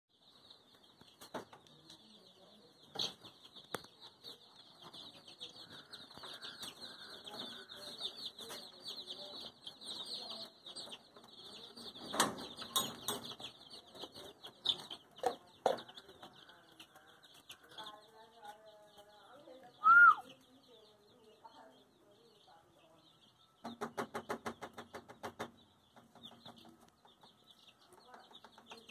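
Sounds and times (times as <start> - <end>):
chicks peeping: 0.1 - 28.9
metal cage knocks and clatter: 11.9 - 13.6.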